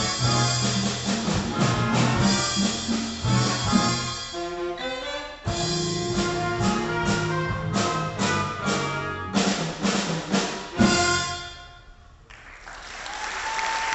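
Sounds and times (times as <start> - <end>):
drum kit hits: 0.0 - 4.4, 5.5 - 11.7
electric bass: 0.0 - 4.4, 5.5 - 11.4
saxophones and trumpets: 0.0 - 12.0.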